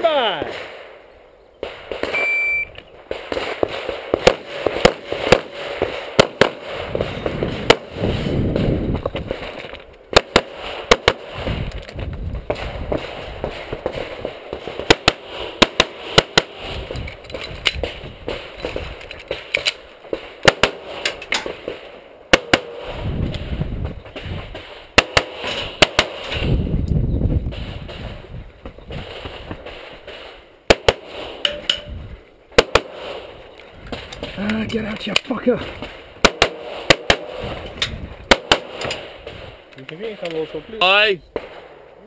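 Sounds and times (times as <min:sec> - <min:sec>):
pistol shots: 0:03.1 - 0:11.3, 0:20.4 - 0:22.8, 0:25.0 - 0:26.5, 0:32.5 - 0:33.2, 0:35.0 - 0:37.6, 0:38.3 - 0:39.1.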